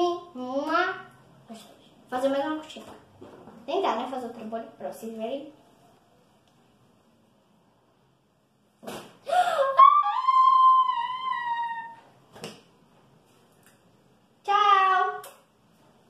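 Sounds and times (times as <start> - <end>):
girl screaming: 9.3 - 12.1.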